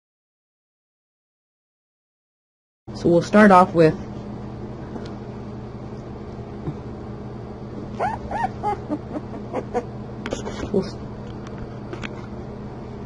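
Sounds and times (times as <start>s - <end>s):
puppy squeaky whimpers: 8.0s - 9.9s.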